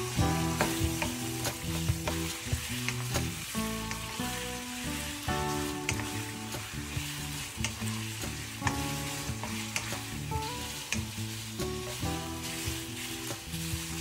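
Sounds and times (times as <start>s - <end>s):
meat sizzling in oil: 0.0s - 14.0s
spatula scraping a pan: 5.4s - 11.0s.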